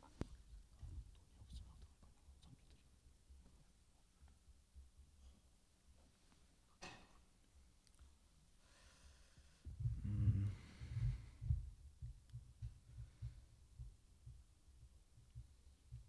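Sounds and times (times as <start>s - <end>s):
low thumps on microphone: 0.2s - 1.7s, 9.6s - 16.0s
breath noise on microphone: 8.6s - 14.0s.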